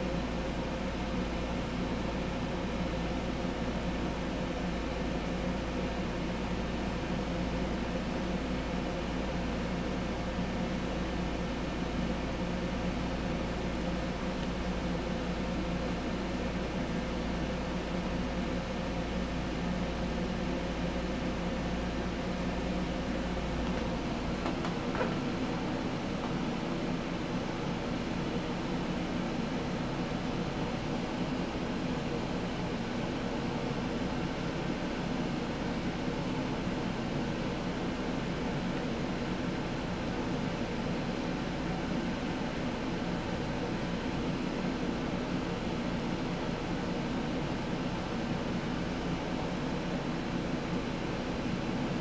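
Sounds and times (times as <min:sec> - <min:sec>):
ceiling fan whirring: 0:00.0 - 0:52.0.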